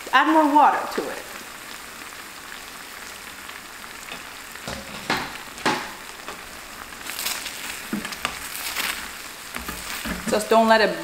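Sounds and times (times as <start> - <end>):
sauce sizzling in a frying pan: 0.0 - 11.0
sharp knocks: 4.7 - 6.0.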